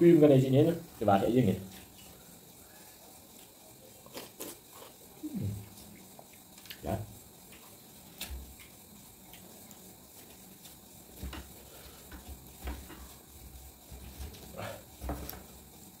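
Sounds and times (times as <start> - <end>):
chewing and slurping: 3.4 - 6.8.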